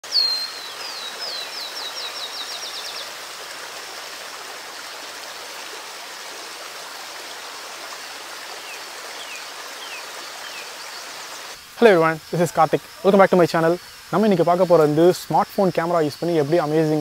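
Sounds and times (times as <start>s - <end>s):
small bird singing: 0.0s - 3.2s, 8.6s - 11.2s
flowing river water: 0.0s - 17.0s.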